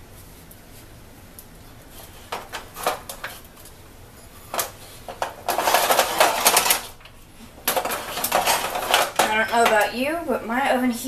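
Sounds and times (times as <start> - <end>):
foil pan crinkling and rattling: 4.5 - 10.0.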